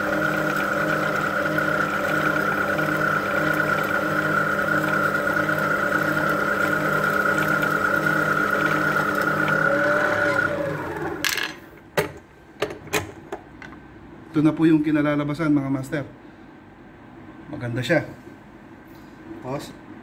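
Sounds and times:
line winder motor whine: 0.0s - 11.3s.

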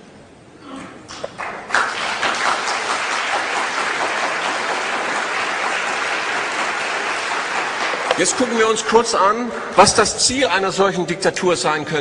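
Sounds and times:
audience applauding: 1.1s - 10.4s.

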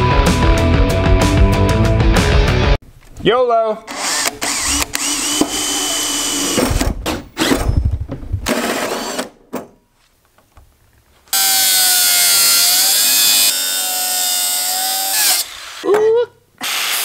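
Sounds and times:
cordless drill boring metal: 3.9s - 6.8s, 11.3s - 15.8s, 16.6s - 17.0s
angle grinder cutting metal: 11.3s - 15.8s.

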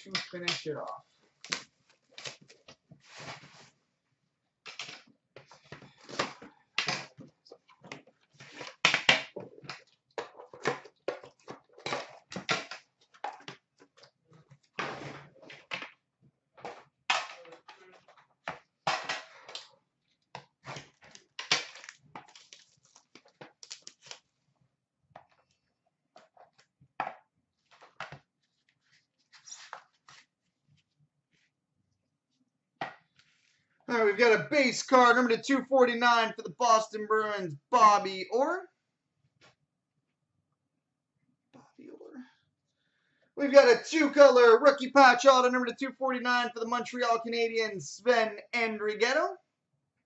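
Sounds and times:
packaging crinkling and rustling: 20.8s - 24.4s.

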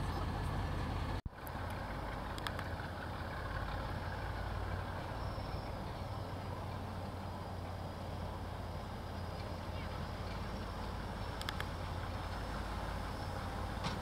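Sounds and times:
diesel locomotive idling: 0.0s - 14.0s
light clicks: 1.4s - 2.7s, 11.4s - 11.8s.

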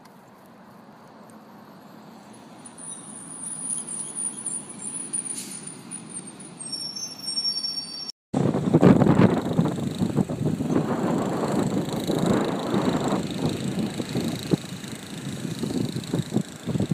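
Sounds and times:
bus engine and tyre noise: 0.0s - 16.9s
high thin squeal: 2.3s - 8.2s.

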